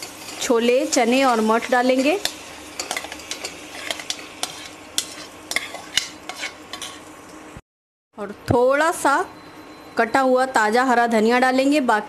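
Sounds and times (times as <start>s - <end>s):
spices sizzling in oil: 0.0s - 7.6s
spoon scraping a plate: 2.2s - 7.1s.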